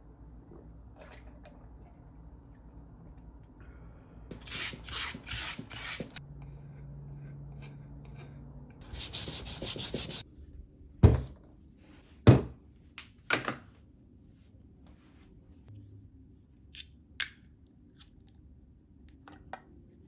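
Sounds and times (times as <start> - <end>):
sandpaper rasping on wood: 8.8 - 10.2.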